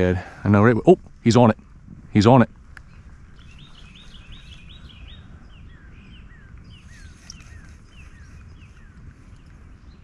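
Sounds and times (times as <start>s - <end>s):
low rumble: 0.0s - 10.0s
bird calls: 2.8s - 10.0s.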